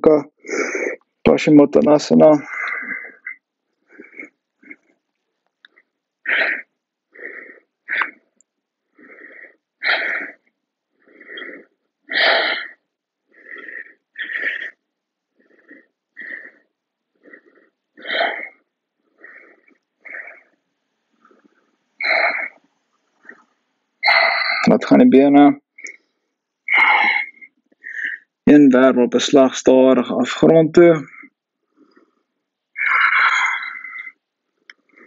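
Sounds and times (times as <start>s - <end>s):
person breathing raspily: 0.3s - 1.1s, 2.4s - 5.0s, 5.7s - 20.6s, 21.2s - 22.6s, 25.8s - 28.4s, 31.0s - 35.0s.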